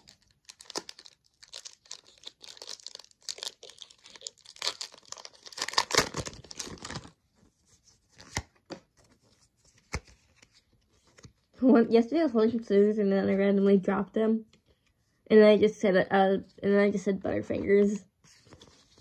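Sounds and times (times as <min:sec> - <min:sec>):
foil pack tearing and crinkling: 0:00.0 - 0:07.1.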